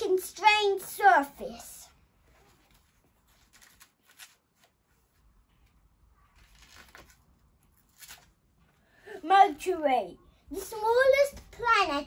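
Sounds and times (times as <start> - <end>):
paper pages flicking: 3.3 - 4.8, 6.4 - 8.4.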